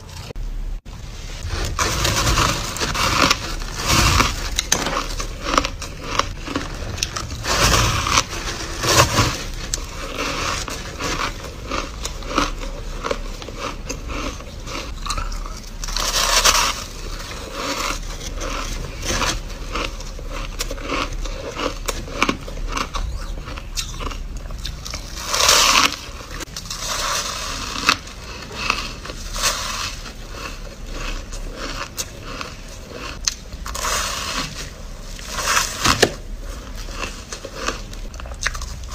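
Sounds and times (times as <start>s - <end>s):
crushed ice being chewed: 1.4s - 38.9s.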